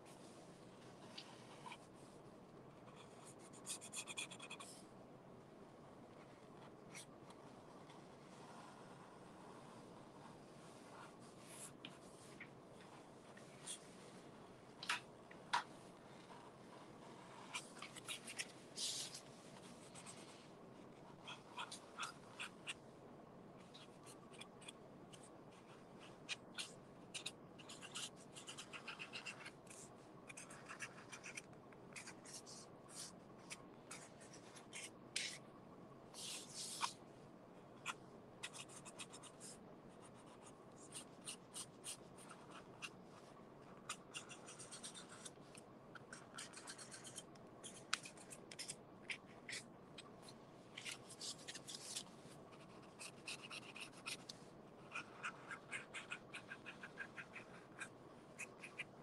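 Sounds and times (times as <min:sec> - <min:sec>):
marker scratching on cardboard: 0:23.7 - 0:35.4, 0:37.8 - 0:43.0, 0:43.8 - 0:45.4, 0:46.0 - 0:49.6, 0:50.8 - 0:54.2, 0:54.8 - 0:59.0.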